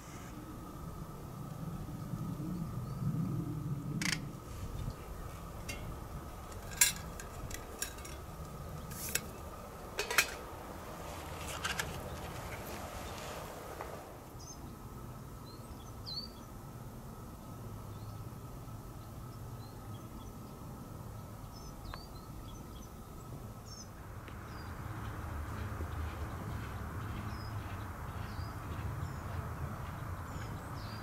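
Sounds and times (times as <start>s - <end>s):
metal cookware clinking: 5.6s - 8.3s, 8.9s - 9.4s, 10.0s - 10.5s.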